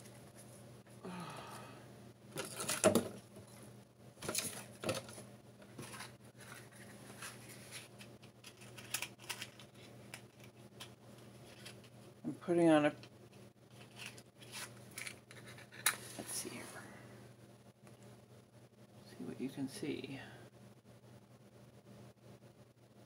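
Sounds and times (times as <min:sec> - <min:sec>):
cardboard and kindling rustling: 0:04.2 - 0:10.5.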